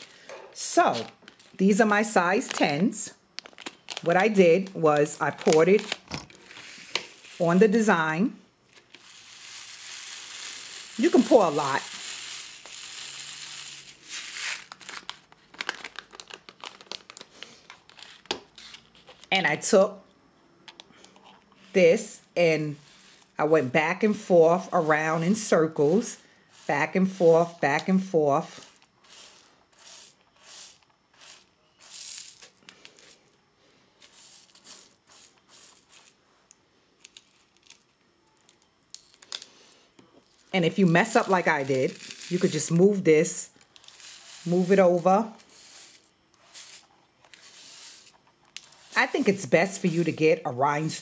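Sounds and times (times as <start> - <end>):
rhinestones pouring rattling: 8.9 - 14.9, 31.2 - 33.2, 40.3 - 46.8
rhinestones rattling under sponge: 9.4 - 13.9.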